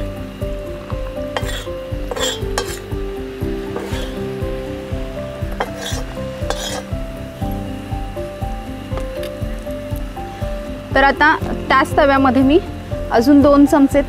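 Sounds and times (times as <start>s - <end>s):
background music with beat: 0.0s - 14.0s
metal spatula scraping iron pan: 1.4s - 2.9s, 3.7s - 4.3s, 5.6s - 7.0s.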